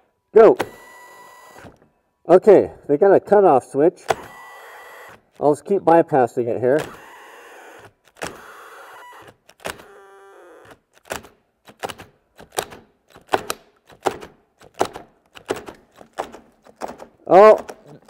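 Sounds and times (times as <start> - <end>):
cordless drills stalling: 0.6 - 1.8, 4.0 - 5.4, 6.8 - 11.1.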